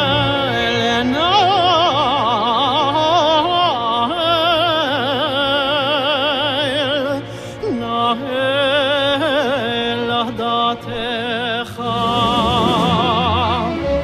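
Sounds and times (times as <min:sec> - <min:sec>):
cantor singing with vibrato: 0:00.0 - 0:14.0
orchestral accompaniment: 0:11.6 - 0:14.0.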